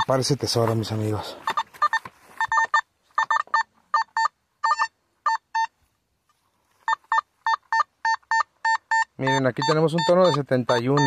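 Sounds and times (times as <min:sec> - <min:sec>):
metal detector beeping: 0:00.0 - 0:05.8, 0:06.8 - 0:11.0.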